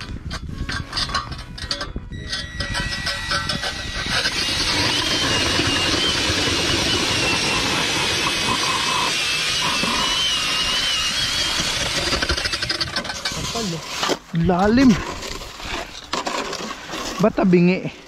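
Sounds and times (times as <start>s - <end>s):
auger grinding through ice: 0.0s - 18.0s
drill motor whine: 1.4s - 13.0s.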